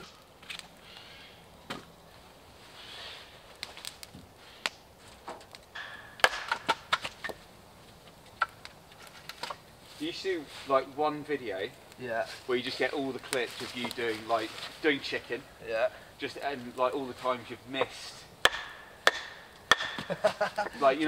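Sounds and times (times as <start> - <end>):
campfire crackling: 0.0 - 21.0
hatchet splitting log: 5.8 - 7.4, 17.8 - 20.2.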